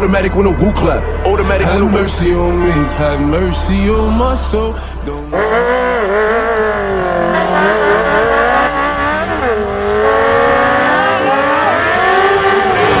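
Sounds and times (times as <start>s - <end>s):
sport bike engine revving: 5.3s - 13.0s.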